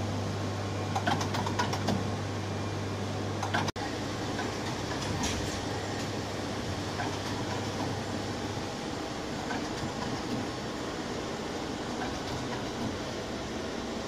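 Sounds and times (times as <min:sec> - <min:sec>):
machinery noise: 0:03.4 - 0:14.0.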